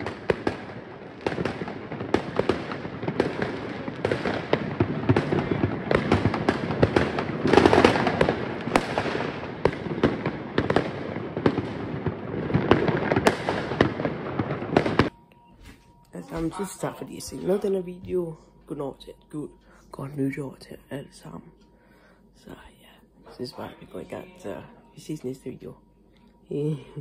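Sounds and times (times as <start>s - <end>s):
fireworks bangs and crackling: 0.0s - 15.1s.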